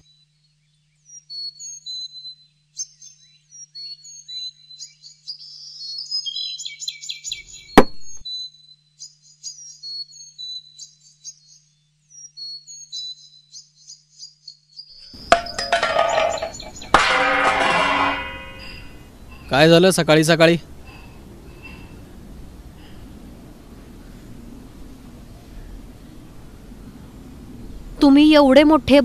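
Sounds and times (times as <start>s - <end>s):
small birds chirping: 0.0s - 17.3s, 18.1s - 29.0s
sharp knock: 7.8s - 8.2s.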